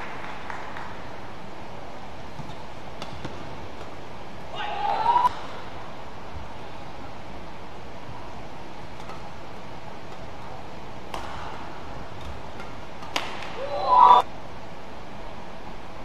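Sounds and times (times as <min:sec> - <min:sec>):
arena hall noise: 0:00.0 - 0:16.0
racket hitting shuttlecock: 0:02.3 - 0:05.9, 0:08.8 - 0:14.3
player shouting: 0:04.5 - 0:05.3, 0:13.5 - 0:14.2.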